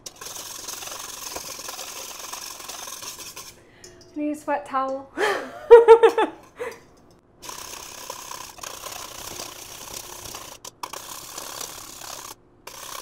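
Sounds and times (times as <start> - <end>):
whisk scraping metal bowl: 0.0 - 4.2, 7.4 - 13.0
woman's voice: 4.2 - 5.2.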